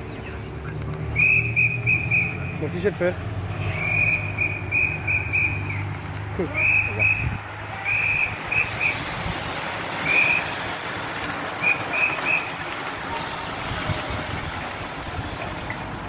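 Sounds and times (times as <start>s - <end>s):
bicycles rushing past: 0.0s - 16.0s
whistle short blasts: 1.1s - 2.6s, 3.6s - 5.8s, 6.6s - 9.0s.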